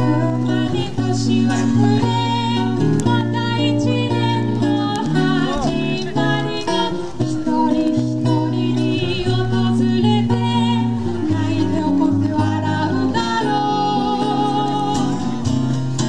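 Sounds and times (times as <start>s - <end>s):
plucked guitar: 0.0s - 16.0s
woman singing: 0.0s - 16.0s.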